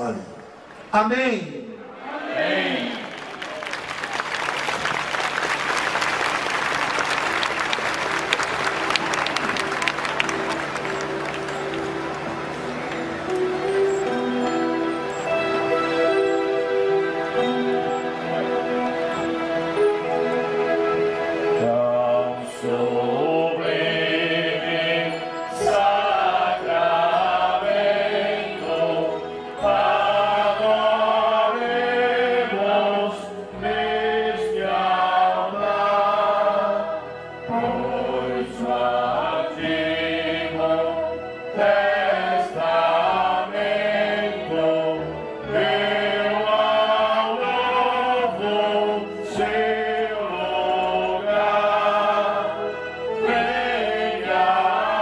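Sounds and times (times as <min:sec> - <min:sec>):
group singing a hymn: 0:01.8 - 0:03.1, 0:12.9 - 0:55.0
low instrumental accompaniment: 0:03.8 - 0:55.0.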